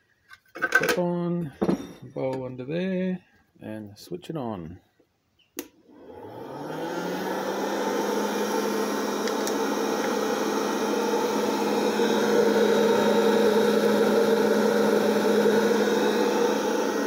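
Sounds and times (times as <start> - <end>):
popcorn popper fan humming: 5.8 - 17.0.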